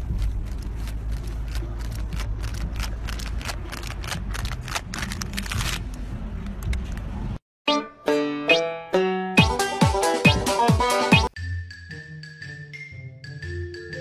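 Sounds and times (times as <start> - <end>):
wind rumbling on microphone: 0.0 - 2.9.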